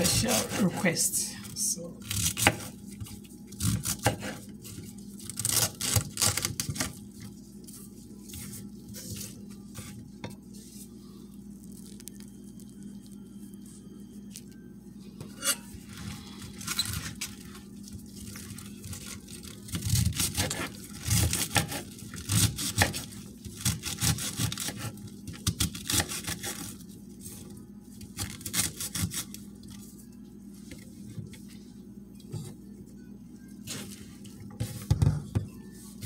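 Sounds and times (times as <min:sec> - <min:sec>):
low steady hum: 0:00.0 - 0:36.0
knife chopping cabbage on board: 0:02.0 - 0:07.0, 0:19.7 - 0:26.7, 0:28.2 - 0:29.3.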